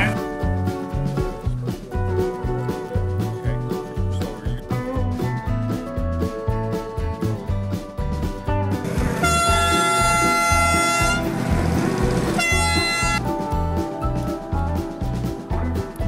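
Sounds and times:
background music with beat: 0.0s - 16.0s
miniature train whistle blast: 9.2s - 11.3s, 12.3s - 13.2s.

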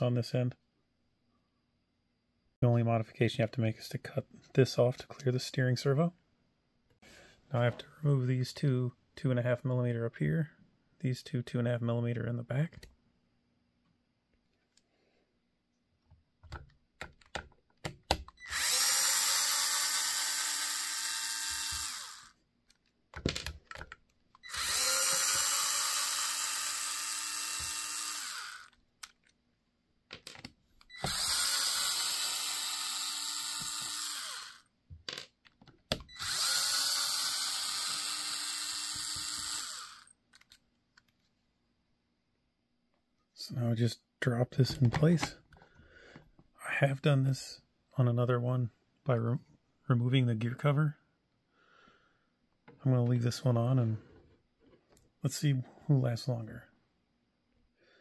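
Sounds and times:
electric screwdriver running: 18.4s - 22.4s, 24.4s - 28.7s, 30.9s - 34.6s, 36.1s - 40.1s.

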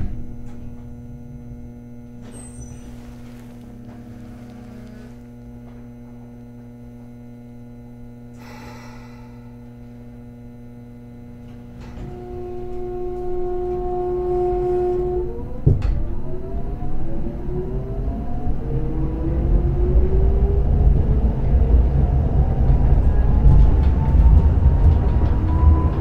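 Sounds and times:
steady tone: 0.0s - 15.6s
tram electrical hum: 0.0s - 26.0s
tram motor whine rising: 0.0s - 26.0s.

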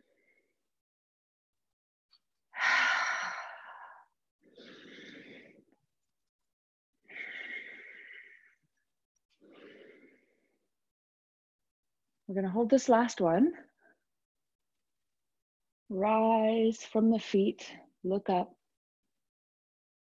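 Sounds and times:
woman breathing audibly: 2.5s - 5.9s, 7.0s - 10.9s.

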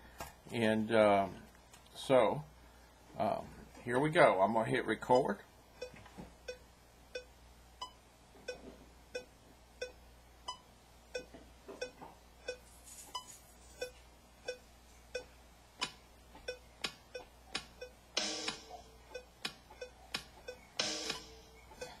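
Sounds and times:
metronome clicks: 15.2s - 22.0s
rock drum kit hits: 18.2s - 18.8s, 20.8s - 21.4s.

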